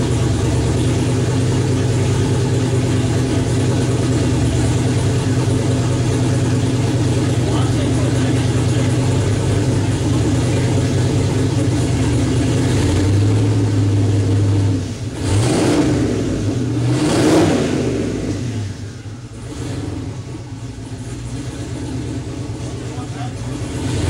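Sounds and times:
car engine idling and revving: 0.0 - 24.0.

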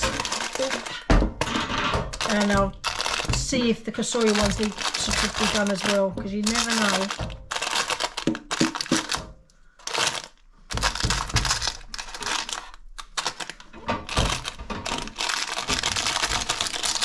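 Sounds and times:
parchment paper crinkling: 0.0 - 1.1, 2.1 - 17.0.

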